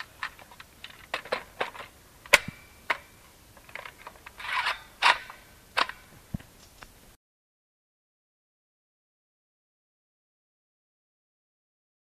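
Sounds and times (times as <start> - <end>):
leaves rustling: 3.1 - 7.2.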